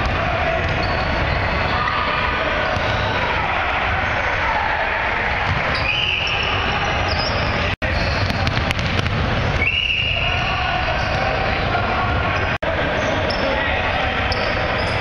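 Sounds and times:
players' voices in a hall: 0.0 - 15.0
basketball bouncing on wooden floor: 8.2 - 9.4.

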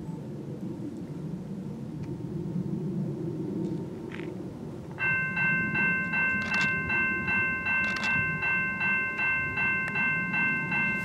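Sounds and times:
crossing bell ringing: 5.0 - 11.0
diesel locomotive rumble: 5.0 - 11.0.

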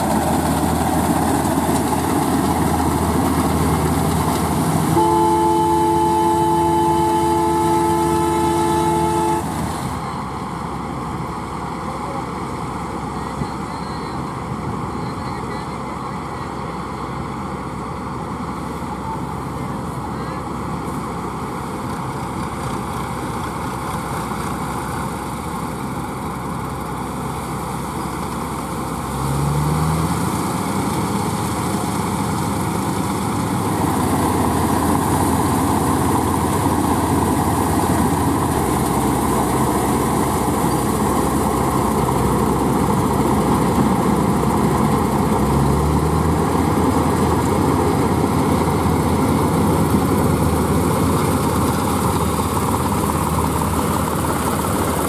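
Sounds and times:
auger pouring grain: 0.0 - 5.4, 29.7 - 55.0
combine and tractor engines running: 0.0 - 55.0.

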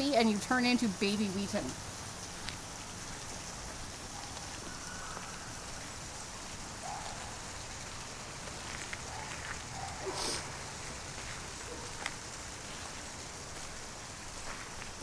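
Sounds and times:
rain on gravel and wet leaves: 0.0 - 15.0.

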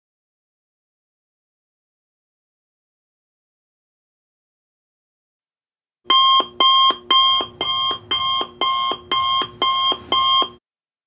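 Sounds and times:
timer alarm pulsing: 6.1 - 10.6.

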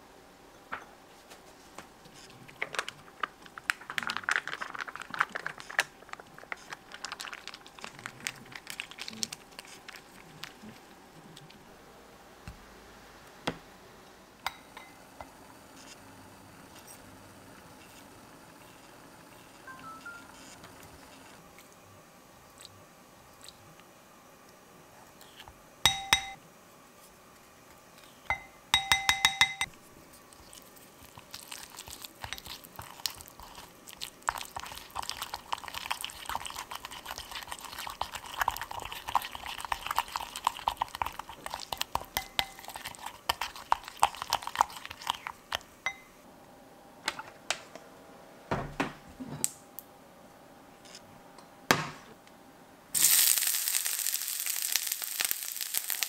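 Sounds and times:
spoon clinking glass bowl: 14.5 - 15.0, 25.9 - 26.4, 28.3 - 29.7, 42.2 - 42.8, 45.9 - 46.1
spoon scraping thick paste: 30.1 - 45.7
onion sizzling in hot oil: 53.0 - 56.0.

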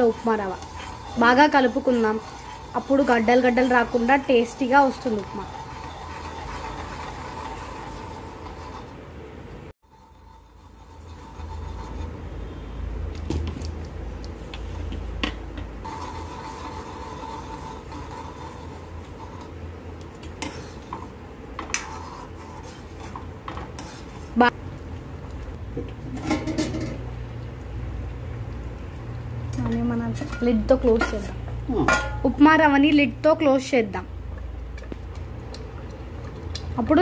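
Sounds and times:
spoon scraping a metal pan: 0.0 - 9.0, 9.9 - 12.7, 15.8 - 19.6, 20.3 - 24.5.

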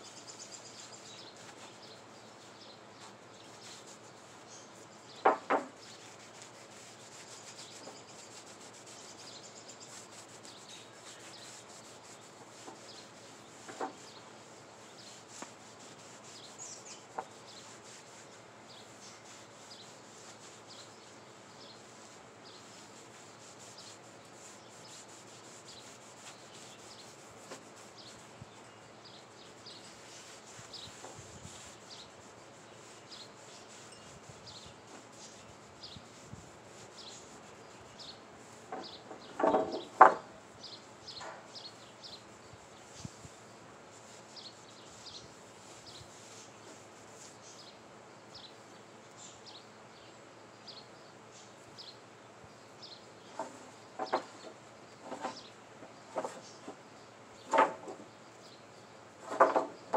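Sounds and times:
scrubbing on wood: 3.1 - 20.9, 21.6 - 40.8, 43.9 - 47.5, 53.3 - 56.8.

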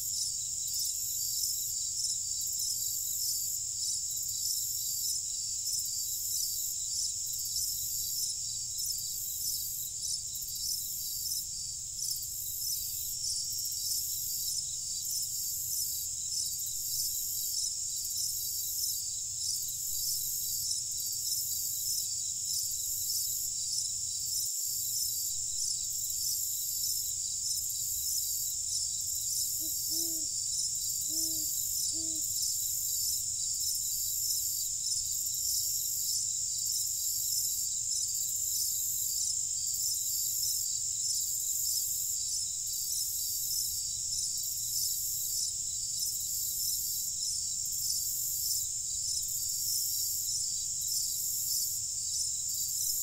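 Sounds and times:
crickets chirring: 0.0 - 53.0.

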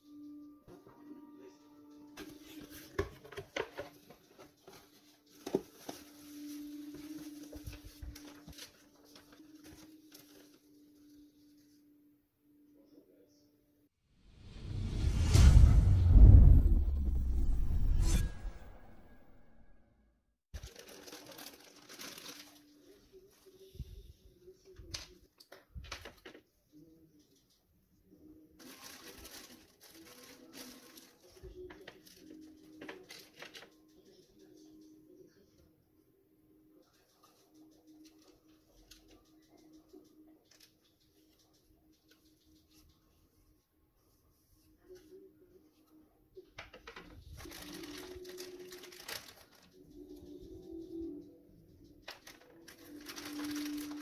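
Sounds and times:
cardboard and bubble wrap crinkling: 2.2 - 11.0, 20.6 - 22.9, 28.6 - 33.6, 47.4 - 49.7, 52.1 - 54.0
paper sheets rustling: 2.2 - 11.6, 20.6 - 23.6, 28.6 - 33.8, 46.7 - 50.4, 52.1 - 54.0
intro sound: 14.3 - 19.8
plastic bags crinkling: 20.6 - 22.8, 28.6 - 31.4, 47.4 - 49.8, 52.1 - 54.0.

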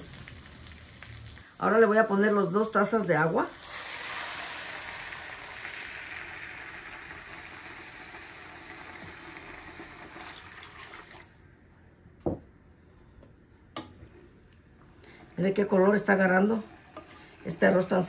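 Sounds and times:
water hissing in hot pan: 0.0 - 11.4.

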